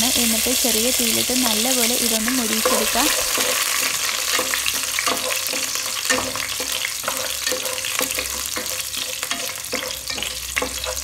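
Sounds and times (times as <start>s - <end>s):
leaves sizzling in hot oil: 0.0s - 11.0s
stirring in pan: 0.2s - 11.0s.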